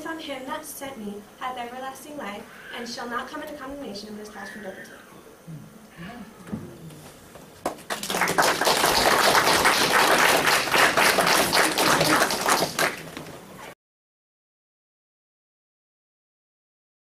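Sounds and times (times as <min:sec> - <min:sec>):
audience applauding: 0:07.6 - 0:13.4.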